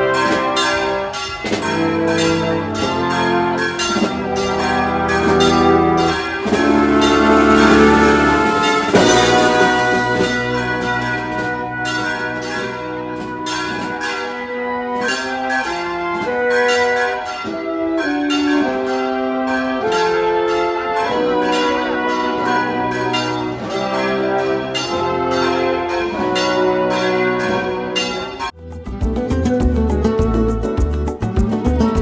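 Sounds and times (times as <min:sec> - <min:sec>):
brass band playing a march: 0:00.0 - 0:28.5
drum hits: 0:01.4 - 0:14.1.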